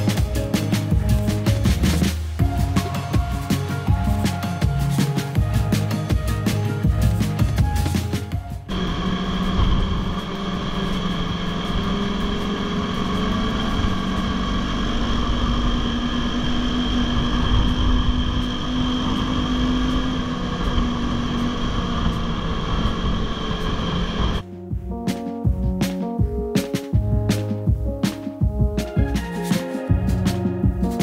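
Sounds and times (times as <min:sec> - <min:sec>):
snowmobile engine running: 0:08.7 - 0:24.4
wind noise on microphone: 0:09.1 - 0:24.4.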